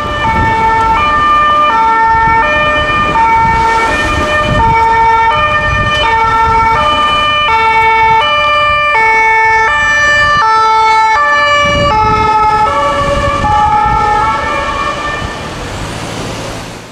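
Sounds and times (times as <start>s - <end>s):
ambulance two-tone siren: 0.0s - 15.7s
traffic: 0.0s - 16.9s
engine rumble: 11.5s - 16.9s.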